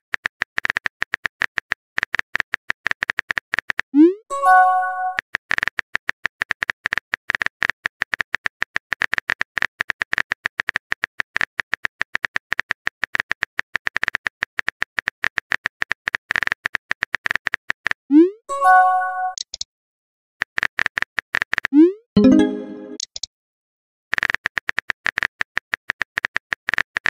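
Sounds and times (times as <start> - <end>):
message chime: 4.3 - 5.2, 18.5 - 19.4, 22.2 - 23.0.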